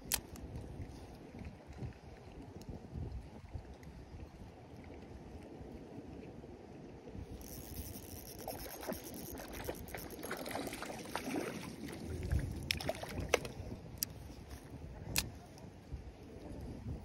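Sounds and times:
water splashing and sloshing: 0:07.2 - 0:15.8.

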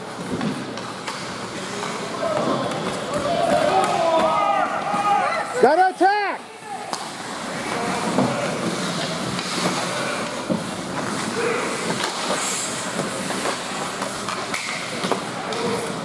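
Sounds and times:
hockey sticks and puck clicking: 0:00.1 - 0:05.0, 0:06.8 - 0:16.0
skates scraping on ice: 0:06.6 - 0:16.0.

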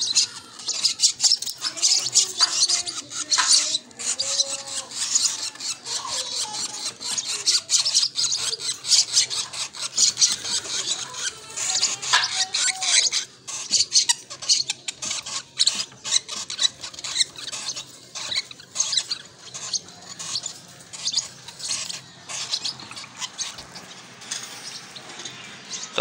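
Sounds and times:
chicks squeaky begging calls: 0:00.0 - 0:26.0.

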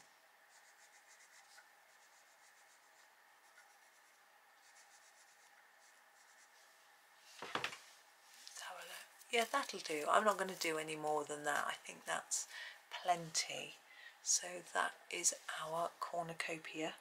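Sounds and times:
coloured pencil scratching on paper: 0:00.5 - 0:06.7.

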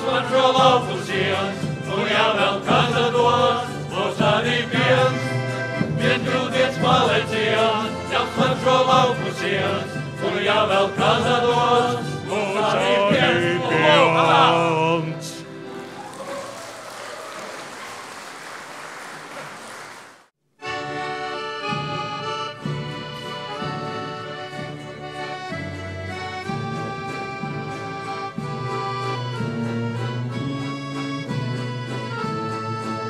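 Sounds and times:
tuba bass: 0:00.0 - 0:15.8, 0:20.6 - 0:33.0
accordions playing folk tune: 0:00.0 - 0:16.0, 0:20.6 - 0:33.0
audience applause: 0:15.7 - 0:20.3.

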